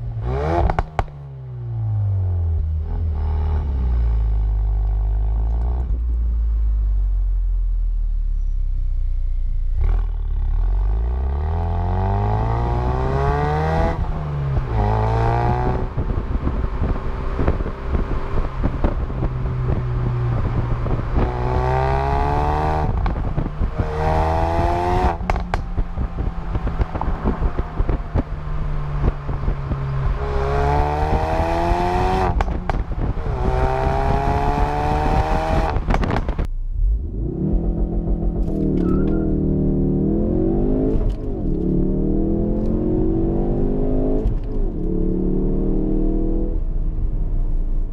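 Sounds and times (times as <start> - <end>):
car exhaust accelerating hard: 9.5 - 47.9
exhaust cracks on gear changes: 24.6 - 30.2, 31.9 - 36.5.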